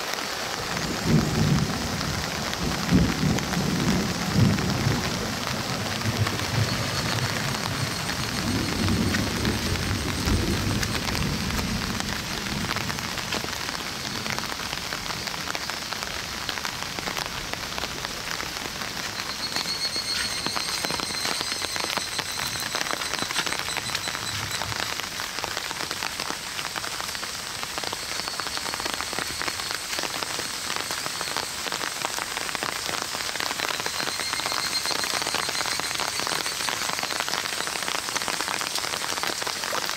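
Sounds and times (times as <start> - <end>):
heavy rain falling: 0.0 - 39.9
low rumble of thunder: 0.8 - 13.2.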